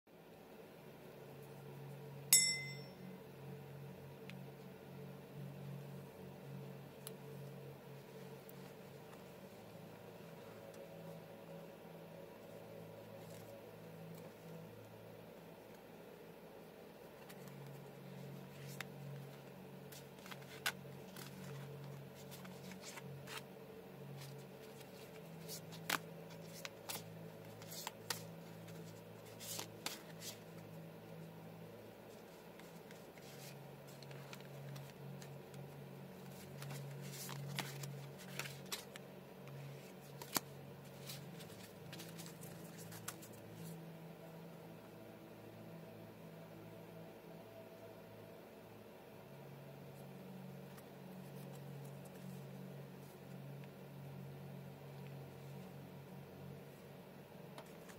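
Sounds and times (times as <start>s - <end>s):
steady low hum: 0.1s - 57.9s
cards being shuffled: 17.2s - 30.8s, 32.0s - 43.8s, 50.6s - 53.3s, 57.5s - 57.9s.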